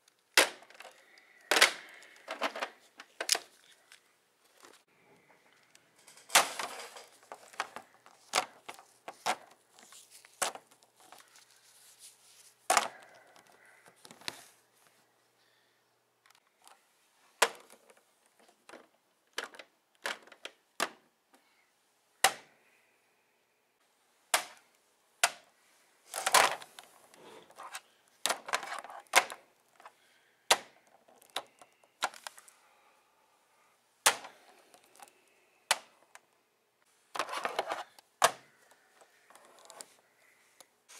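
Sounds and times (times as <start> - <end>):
plastic figures clacking: 0.3 - 11.9, 12.7 - 14.4, 17.4 - 21.0, 26.1 - 32.5, 34.0 - 36.3, 37.1 - 40.7.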